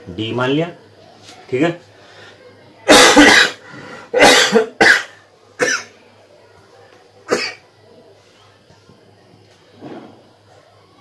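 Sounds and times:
man coughing: 2.9 - 3.6, 4.2 - 5.9.

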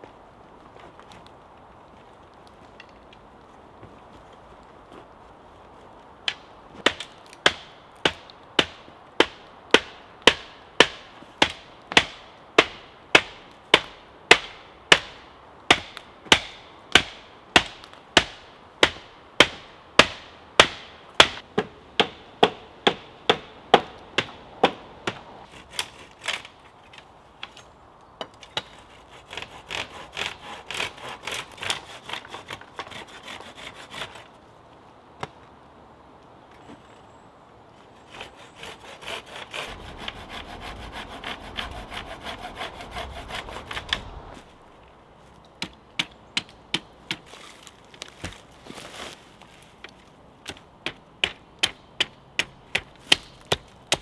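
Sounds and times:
hand saw cutting wood: 25.4 - 26.5, 28.6 - 34.4, 37.9 - 44.5.

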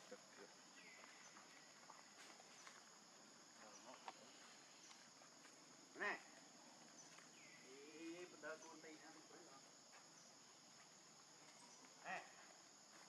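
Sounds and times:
faint high hum of insects: 0.0 - 13.0.

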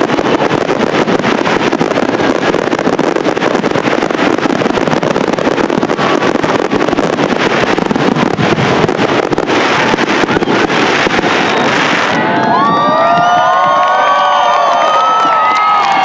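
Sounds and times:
fireworks bursting and crackling: 0.0 - 16.0
crowd cheering and whistling: 10.2 - 16.0.

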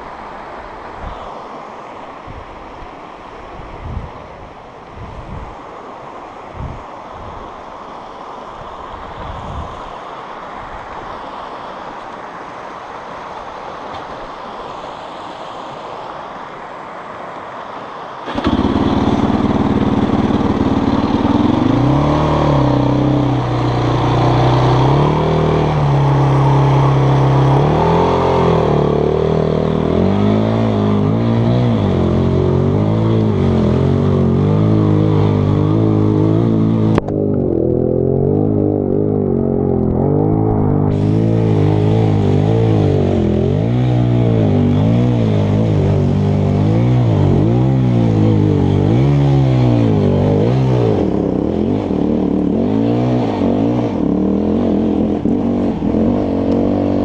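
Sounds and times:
rushing river water: 0.0 - 57.0
wind: 0.0 - 57.0
quad engine revving: 18.3 - 57.0.

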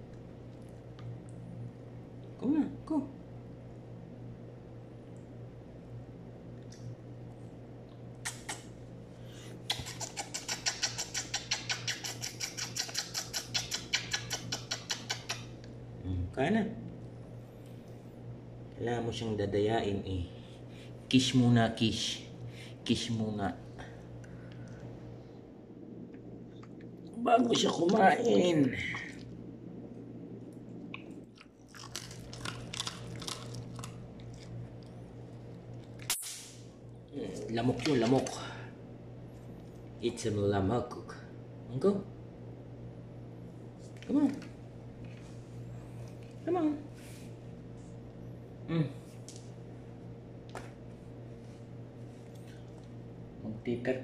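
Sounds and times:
dog chewing crunchy food: 31.2 - 36.0.

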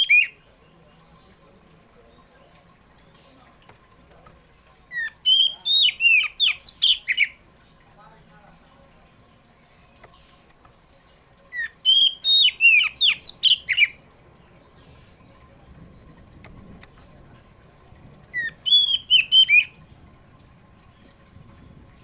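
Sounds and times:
bird singing clear whistles: 4.9 - 7.3, 11.6 - 14.0, 18.4 - 19.8.

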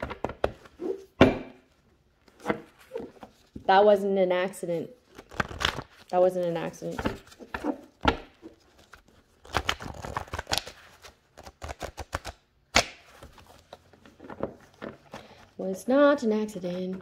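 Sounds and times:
cards shuffling: 5.0 - 15.4.

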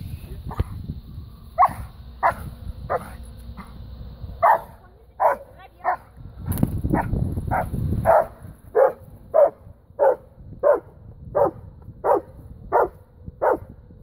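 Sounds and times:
low rumble: 0.0 - 14.0
dog barking: 1.6 - 3.1, 4.4 - 6.1, 7.0 - 13.7.

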